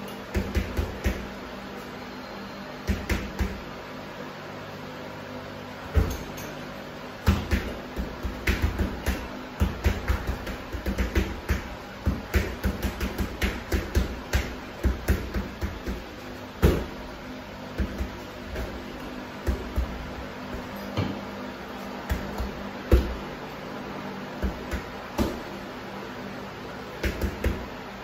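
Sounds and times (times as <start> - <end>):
punches thudding on punching bag: 0.3 - 1.3, 2.8 - 3.6, 5.9 - 6.4, 7.2 - 17.1, 17.7 - 21.2, 22.0 - 23.3, 24.4 - 25.5, 27.0 - 27.7.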